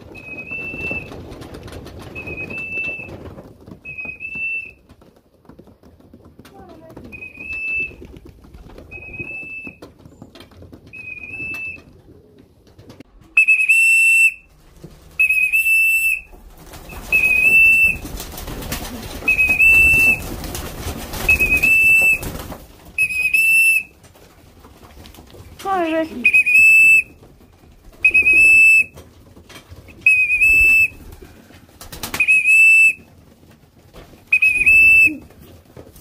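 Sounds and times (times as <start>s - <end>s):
rustling and scuffling: 0.0s - 36.0s
whistle blowing short notes: 13.4s - 14.5s, 15.2s - 16.3s, 17.0s - 18.0s, 26.2s - 27.1s, 28.0s - 28.9s, 30.0s - 30.9s, 32.1s - 33.0s, 34.3s - 35.2s.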